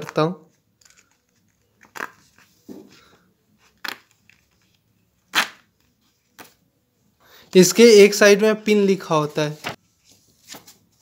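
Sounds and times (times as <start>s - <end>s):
paper tearing: 5.3s - 5.7s
paper rustling: 9.1s - 11.0s.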